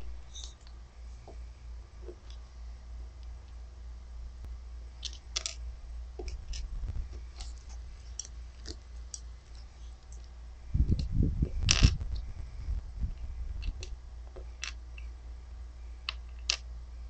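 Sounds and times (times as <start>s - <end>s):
low thumps: 6.1s - 7.9s, 10.7s - 14.5s.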